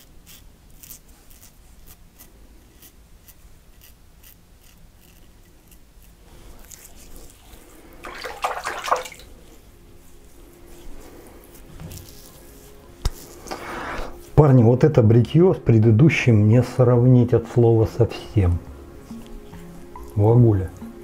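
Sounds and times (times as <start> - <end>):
razor scraping stubble: 0.0 - 8.0, 10.7 - 14.4.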